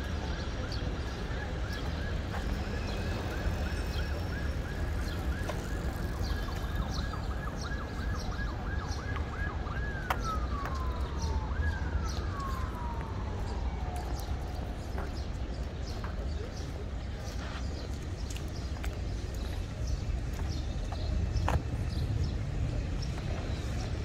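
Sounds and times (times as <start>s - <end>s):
low city rumble: 0.0s - 24.0s
siren yelping and wailing: 1.5s - 14.8s.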